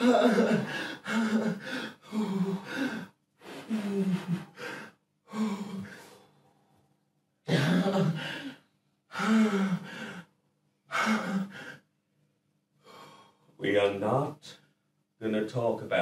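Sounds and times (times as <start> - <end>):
person sobbing: 0.0 - 3.0, 3.7 - 5.9, 7.5 - 8.5.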